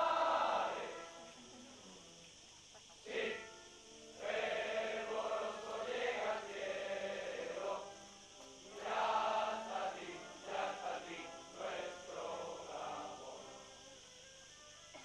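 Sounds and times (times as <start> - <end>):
voices singing in unison: 0.0 - 2.0, 2.7 - 14.2.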